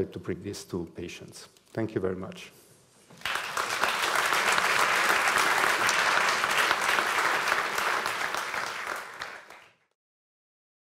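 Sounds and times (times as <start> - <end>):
audience applauding: 3.2 - 9.9.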